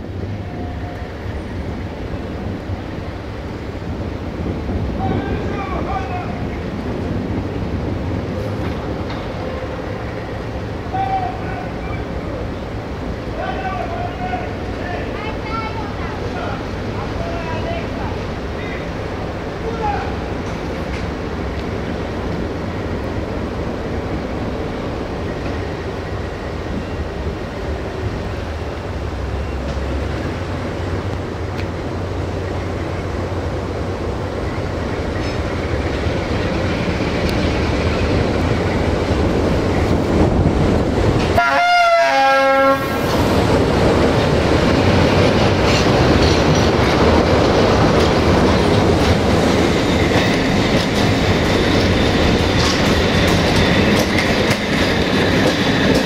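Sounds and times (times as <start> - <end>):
train coaches rolling past: 0.0 - 56.0
two-note train horn: 41.4 - 43.0.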